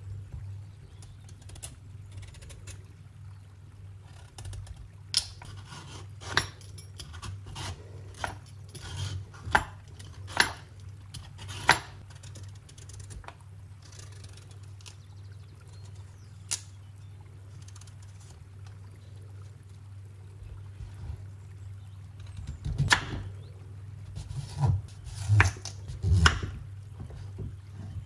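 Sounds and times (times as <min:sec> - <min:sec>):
knife scraping pumpkin rind: 0:05.5 - 0:06.4, 0:07.0 - 0:10.5, 0:24.2 - 0:26.5.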